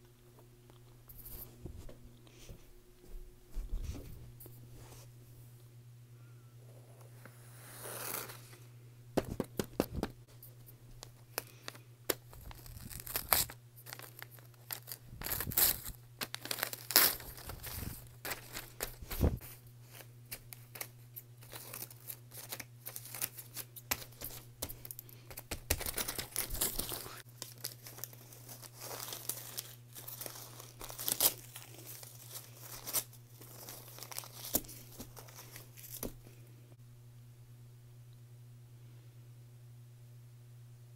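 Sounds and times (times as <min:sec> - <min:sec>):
faint low hum: 0:00.0 - 0:40.9
paper tearing and crumpling: 0:07.6 - 0:08.5, 0:12.2 - 0:24.4, 0:25.5 - 0:36.1.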